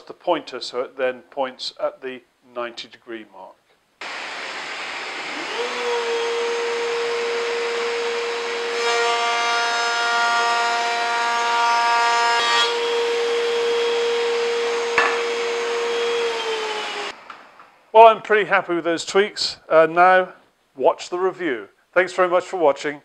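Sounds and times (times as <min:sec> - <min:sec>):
dust extractor running: 0:04.0 - 0:08.6
router whining: 0:04.0 - 0:08.8, 0:12.7 - 0:17.4
router cutting wood: 0:04.0 - 0:17.2.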